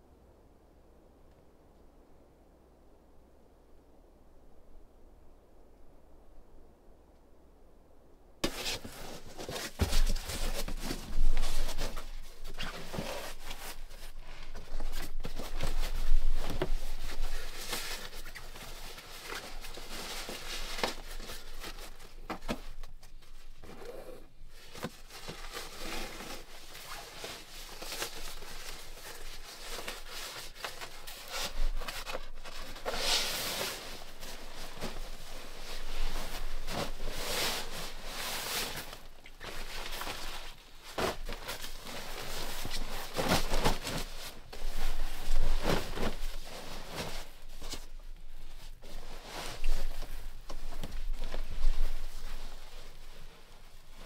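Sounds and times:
nylon fabric rustling: 8.4s - 54.0s.

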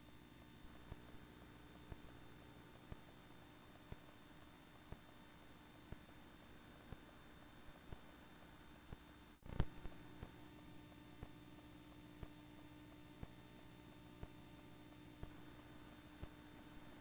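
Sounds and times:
faint electrical hum: 0.0s - 17.0s
faint ticks: 0.6s - 17.0s.

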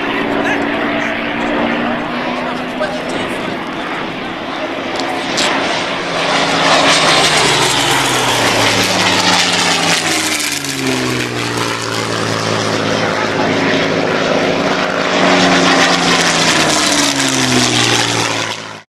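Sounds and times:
propeller aircraft flying overhead: 0.0s - 18.9s.

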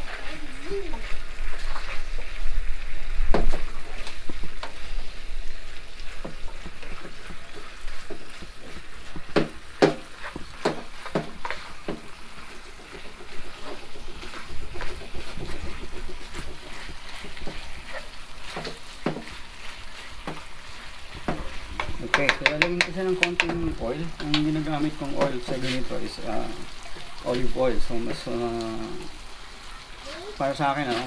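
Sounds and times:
meat frying in a pan: 0.0s - 31.0s
ladle knocking against pan: 9.0s - 12.1s, 21.2s - 24.5s.

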